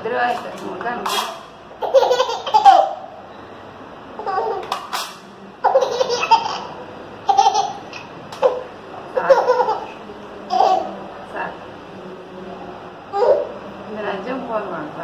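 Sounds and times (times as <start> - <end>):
baby laughing: 1.8 - 3.0, 4.2 - 5.0, 5.6 - 11.0.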